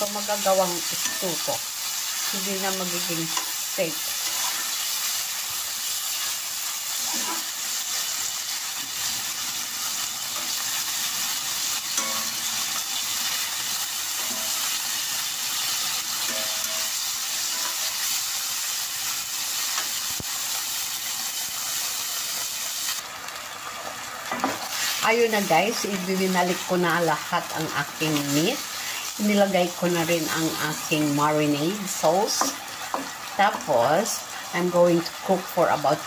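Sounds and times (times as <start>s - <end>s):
meat sizzling in a pan: 0.0s - 36.0s.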